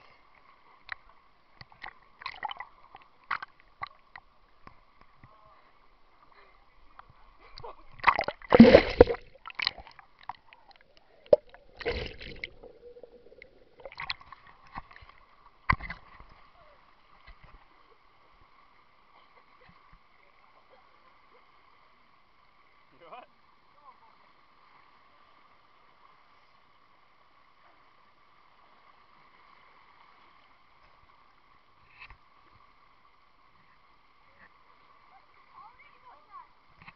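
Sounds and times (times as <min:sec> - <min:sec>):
river water splashing and gurgling: 0:00.0 - 0:19.6.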